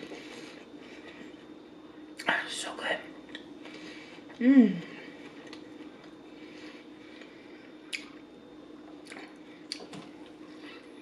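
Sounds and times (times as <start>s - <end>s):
chewing with wet mouth sounds: 5.1s - 8.3s, 8.9s - 10.4s.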